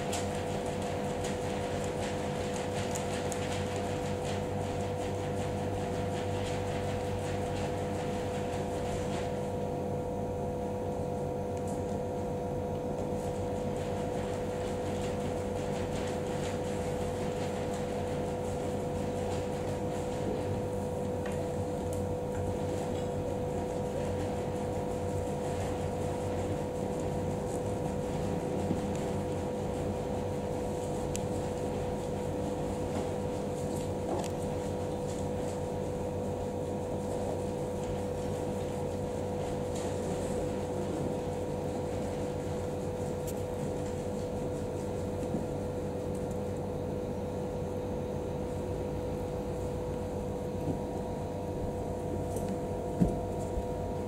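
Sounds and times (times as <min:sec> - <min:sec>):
mechanical room hum: 0:00.0 - 0:54.0.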